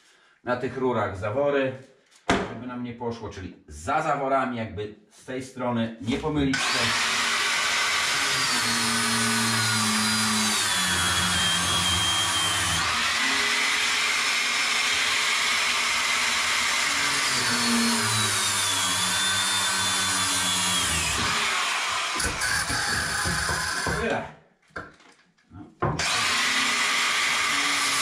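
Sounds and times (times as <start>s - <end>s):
power tool cutting pipes: 6.5s - 24.2s, 25.8s - 28.0s.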